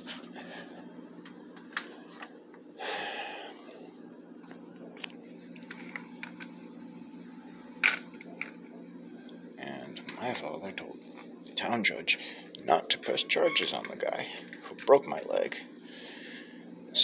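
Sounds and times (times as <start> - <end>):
steady low hum: 0.0 - 17.0
breathy exhale: 2.8 - 3.6.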